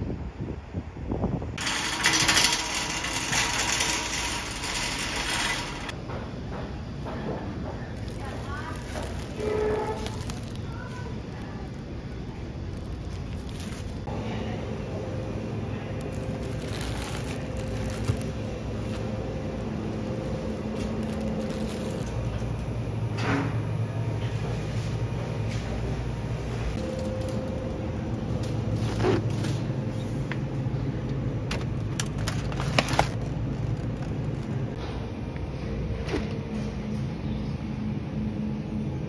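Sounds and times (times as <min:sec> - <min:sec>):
refrigerator machine hum: 0:00.0 - 0:39.0
shopping cart rumbling: 0:01.6 - 0:06.0, 0:07.8 - 0:22.8, 0:26.7 - 0:34.8.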